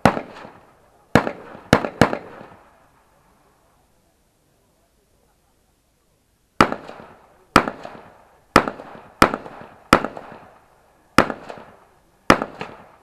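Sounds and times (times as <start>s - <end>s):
rifle shots with echo: 0.0s - 3.0s, 6.6s - 13.0s.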